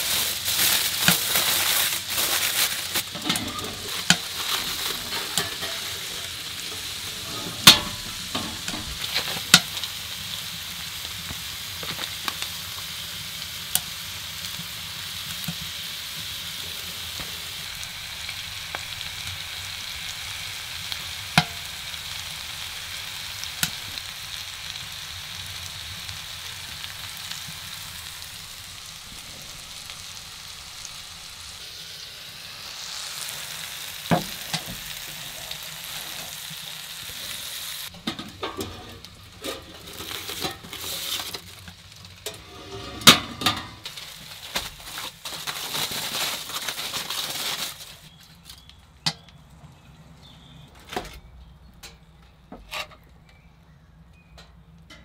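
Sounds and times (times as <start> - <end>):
food sizzling in a skillet: 0.0 - 45.3
utensil clinking on pan: 4.9 - 9.0.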